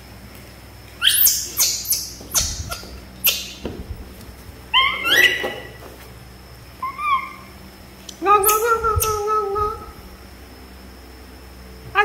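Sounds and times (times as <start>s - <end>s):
monkey high squeaks: 1.0s - 3.6s, 4.7s - 5.8s, 6.8s - 7.5s, 8.4s - 9.3s.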